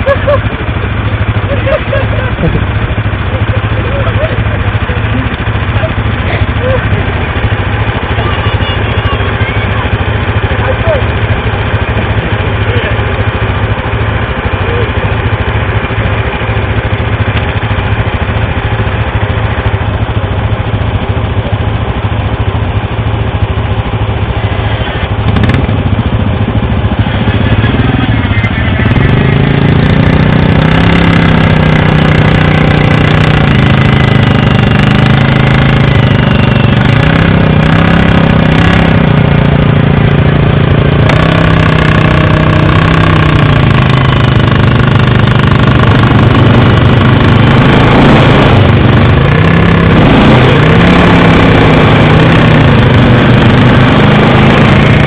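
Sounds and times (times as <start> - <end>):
quad engines running in mud: 0.0 - 55.0
quad engine revving hard: 1.2 - 13.9, 24.5 - 25.9, 27.0 - 55.0.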